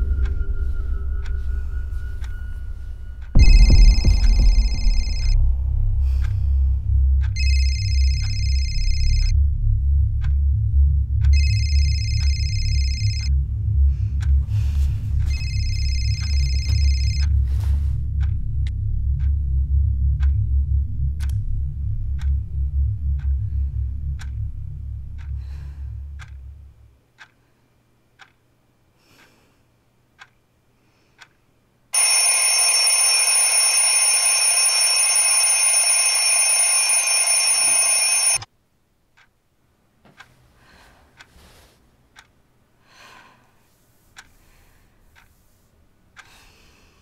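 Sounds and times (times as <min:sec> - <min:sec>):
low pulsing drone: 0:00.0 - 0:26.9
clock ticking: 0:00.0 - 0:27.4, 0:28.2 - 0:28.4, 0:30.1 - 0:30.4, 0:32.0 - 0:38.5, 0:40.1 - 0:40.4, 0:41.1 - 0:41.4, 0:42.1 - 0:42.6, 0:44.0 - 0:46.6
phone ringing shrilly: 0:32.0 - 0:38.5.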